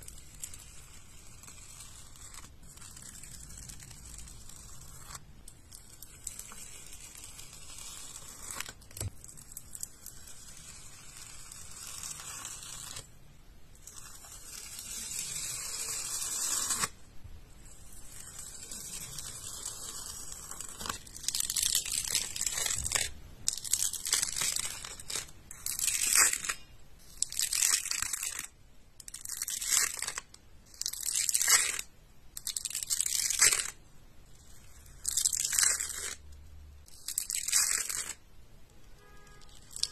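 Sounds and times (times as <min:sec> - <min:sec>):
plastic film being peeled: 0:18.0 - 0:33.8, 0:34.6 - 0:36.2, 0:36.8 - 0:38.2, 0:39.4 - 0:39.9.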